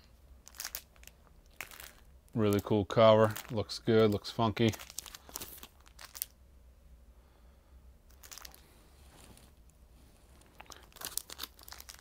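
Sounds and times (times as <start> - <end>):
rustle of records being flipped: 0.5 - 6.3, 8.1 - 12.0.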